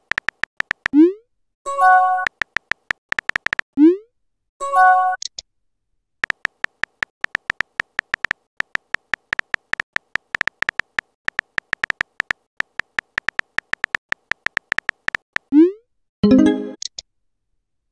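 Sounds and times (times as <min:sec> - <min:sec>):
phone keyboard typing clicks: 0:00.0 - 0:01.0, 0:02.2 - 0:03.7, 0:06.2 - 0:15.5.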